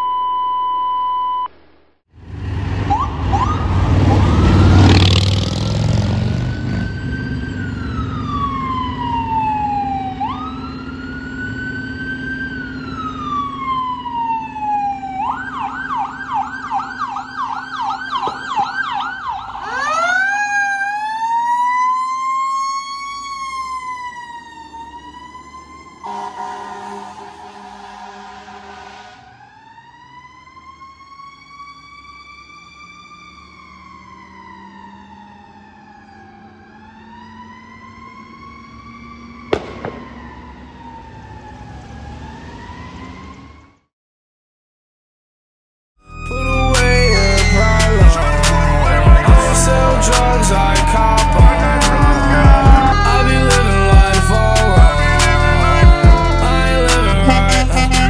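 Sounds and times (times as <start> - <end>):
short steady beep: 0.0 - 1.5
fire engine siren wailing: 2.2 - 43.9, 46.0 - 58.0.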